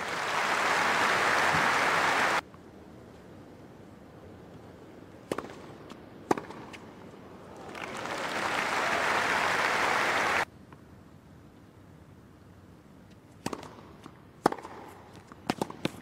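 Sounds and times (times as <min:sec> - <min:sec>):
crowd applauding: 0:00.0 - 0:02.4, 0:07.6 - 0:10.5
crowd hum: 0:00.0 - 0:02.4, 0:07.4 - 0:10.4
tennis ball struck by racquet: 0:05.3 - 0:05.7, 0:06.3 - 0:06.8, 0:13.4 - 0:16.0.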